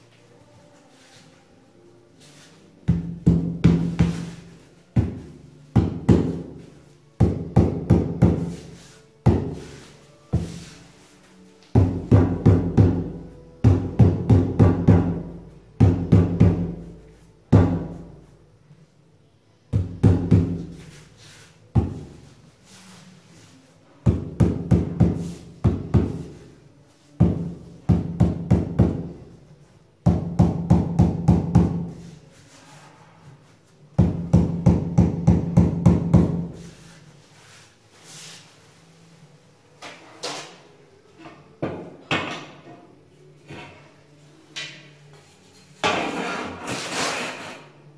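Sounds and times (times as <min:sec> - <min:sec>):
hand pounding on floor tile: 0:02.9 - 0:06.6, 0:07.2 - 0:09.7, 0:11.8 - 0:16.8, 0:19.8 - 0:20.9, 0:24.1 - 0:26.4, 0:27.2 - 0:29.2, 0:30.1 - 0:32.1, 0:34.0 - 0:36.6.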